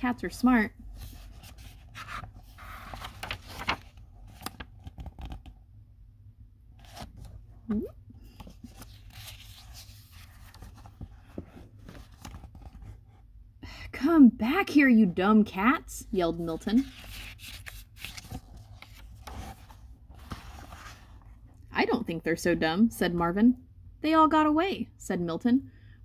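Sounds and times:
paper pages rustling: 0:00.9 - 0:05.5, 0:06.8 - 0:07.3, 0:08.3 - 0:13.0, 0:16.7 - 0:21.3.

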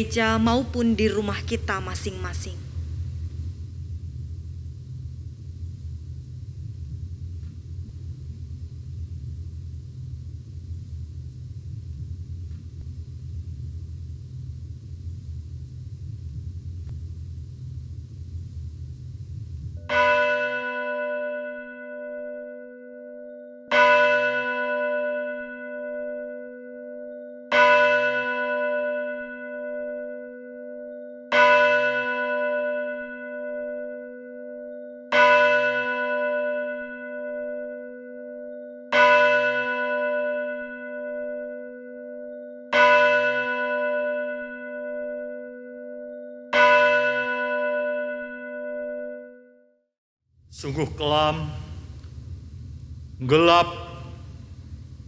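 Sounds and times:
church bell tolling: 0:19.8 - 0:49.5, 0:50.6 - 0:52.4, 0:53.1 - 0:55.0.

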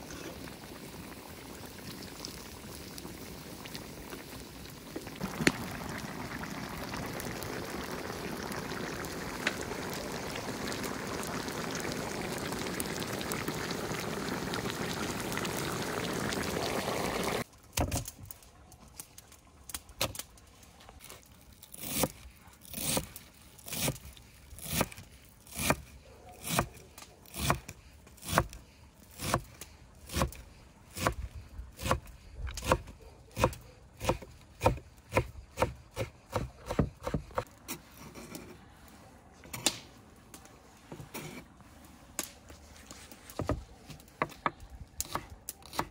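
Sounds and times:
pot boiling: 0:00.0 - 0:25.9.

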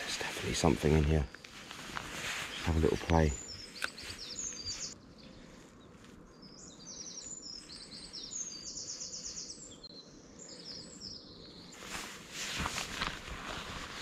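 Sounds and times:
songbird trilling: 0:02.5 - 0:05.0.

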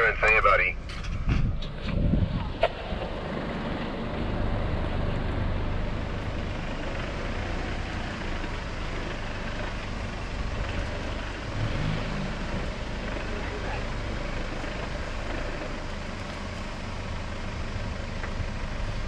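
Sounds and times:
car engine running at low revs: 0:00.0 - 0:19.0.

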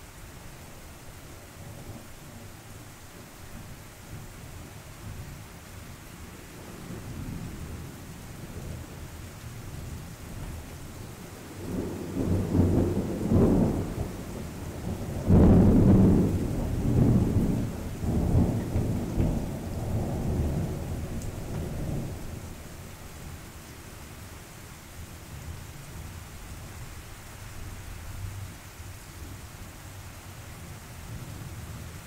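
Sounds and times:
steady rain: 0:00.0 - 0:32.0
thunder rumbling: 0:11.2 - 0:22.8.

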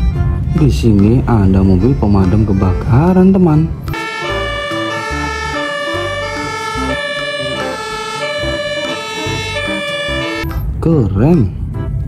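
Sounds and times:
bass line: 0:03.9 - 0:10.4
electronic melody: 0:03.9 - 0:10.4.

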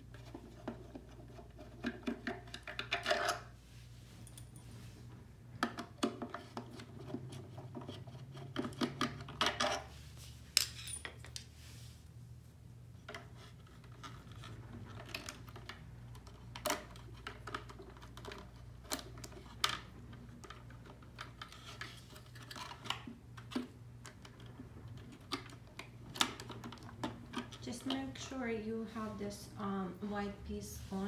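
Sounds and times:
faint low hum: 0:00.0 - 0:31.0.

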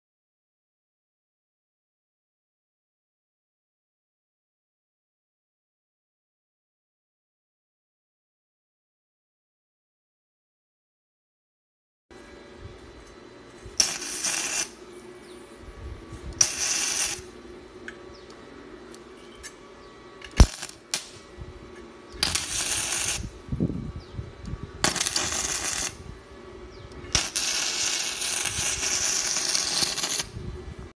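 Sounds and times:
welding arc crackling: 0:13.7 - 0:14.9, 0:16.4 - 0:17.4, 0:20.2 - 0:21.3, 0:22.1 - 0:23.5, 0:24.8 - 0:26.1, 0:26.9 - 0:30.4.

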